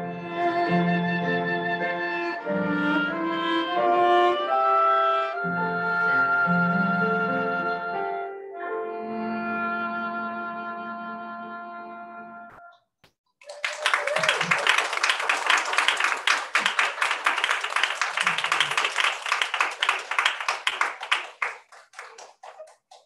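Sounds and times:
audience applauding: 13.4s - 23.0s.

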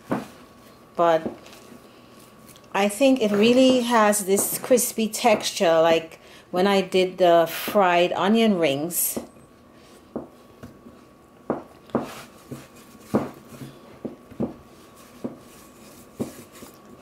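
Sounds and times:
dough thumping in bowl: 11.5s - 14.6s.

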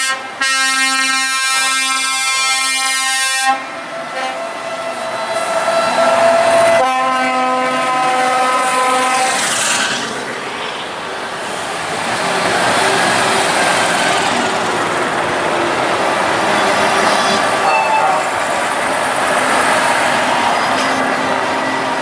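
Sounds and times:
truck air horns: 0.0s - 9.5s, 17.2s - 18.4s
truck diesel engines rumbling: 0.0s - 22.0s.

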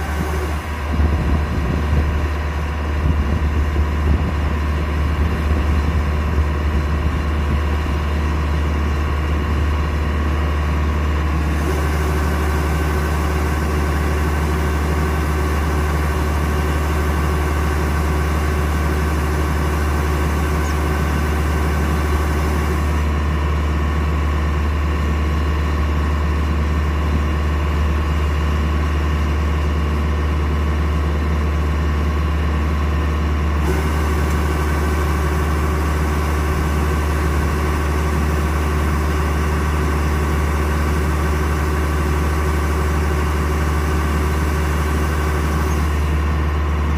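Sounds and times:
machine drone: 0.0s - 23.4s, 33.5s - 46.9s
diesel engine running: 0.0s - 46.9s.

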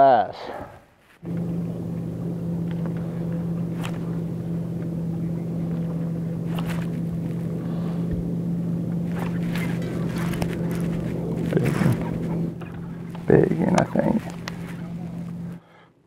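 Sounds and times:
electric boat motor humming: 1.2s - 15.7s.

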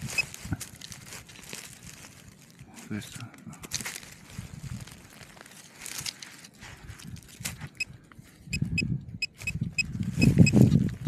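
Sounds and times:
hand scraping soil: 0.0s - 7.8s
metal detector beeps: 8.5s - 10.6s.

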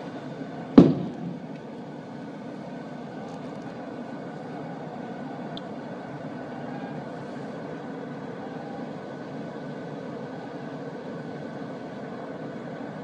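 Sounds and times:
outdoor street noise: 0.0s - 13.0s
stun grenade bang: 0.8s - 1.4s.

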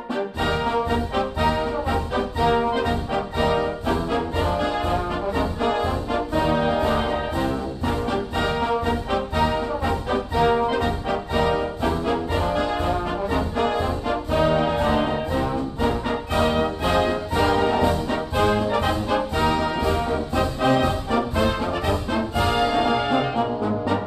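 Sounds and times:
orchestral brass chords: 0.0s - 24.0s
steady beat: 0.3s - 23.5s.

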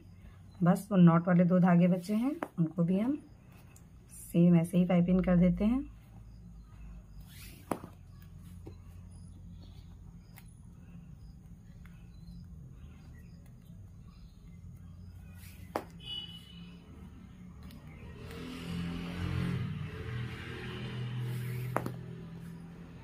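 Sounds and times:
cord rustling: 21.2s - 22.6s.

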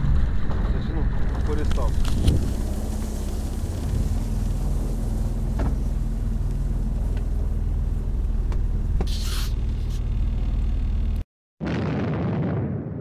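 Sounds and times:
outboard motor running: 1.2s - 11.2s
short hiss: 9.0s - 10.0s.

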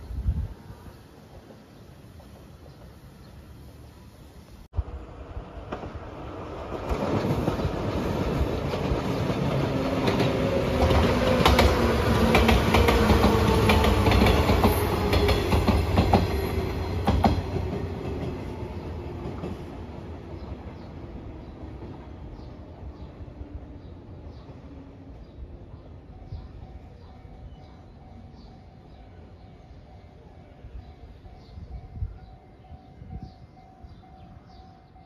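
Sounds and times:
electric train passing: 0.0s - 35.0s
wheels clacking over rail joints: 5.6s - 20.0s.

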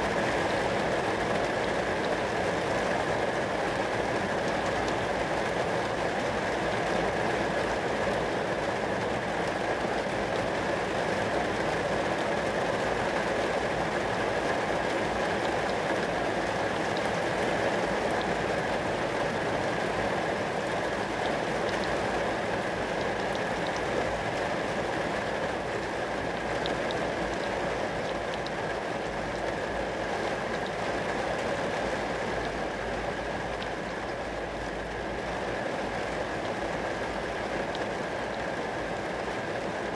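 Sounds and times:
rain on glass: 0.0s - 39.9s
raindrop ticks: 26.3s - 29.6s, 30.5s - 30.8s.

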